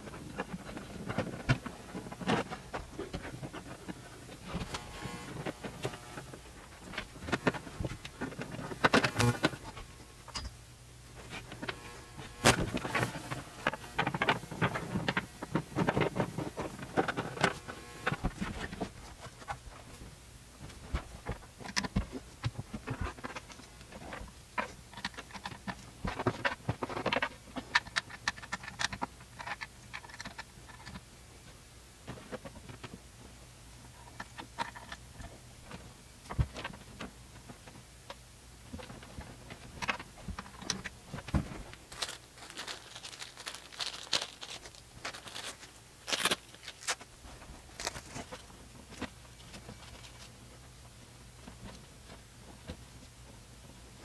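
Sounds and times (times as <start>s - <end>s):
cables and plastic parts clicking: 0.0s - 10.6s, 11.2s - 31.1s, 33.8s - 53.3s.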